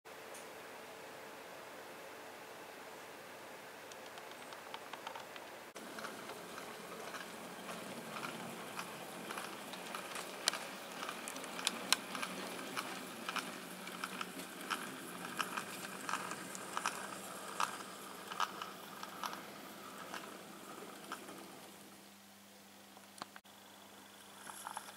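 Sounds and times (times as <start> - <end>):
steady low hum: 0.2 - 24.9
model train wheels clicking: 3.9 - 21.8.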